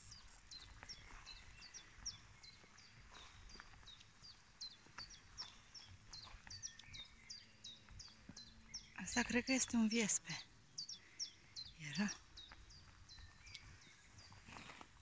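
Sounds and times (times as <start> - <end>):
footsteps through tall grass: 0.0 - 7.2, 12.6 - 15.0
small birds chirping: 0.0 - 15.0.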